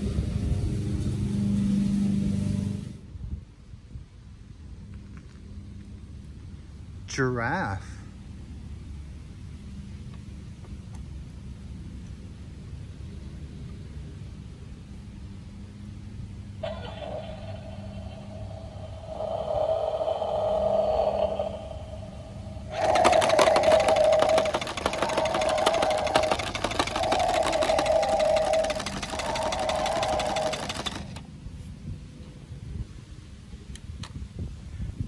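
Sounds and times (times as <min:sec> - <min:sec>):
toy motor rattling: 0:22.6 - 0:31.3
toy truck electronic tone: 0:22.7 - 0:31.2.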